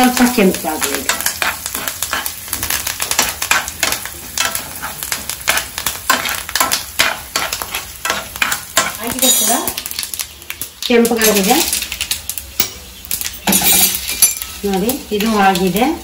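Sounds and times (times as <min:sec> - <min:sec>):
spoon scraping frying pan: 0:00.0 - 0:10.1
spices sizzling in hot oil: 0:00.0 - 0:16.0.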